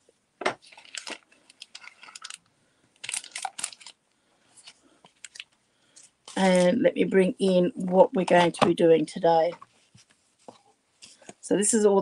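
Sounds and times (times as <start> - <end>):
cardstock rustling and crinkling: 0.4 - 6.8.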